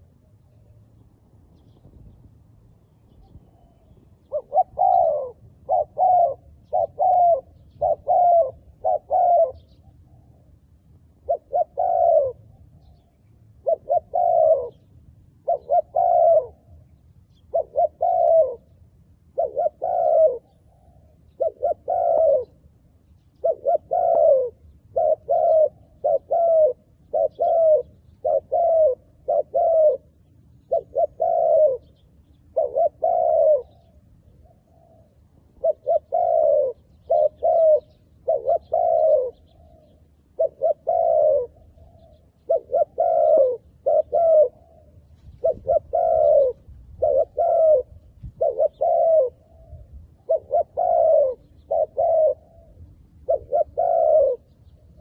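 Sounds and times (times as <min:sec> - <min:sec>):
dove cooing: 0:00.0 - 0:55.0.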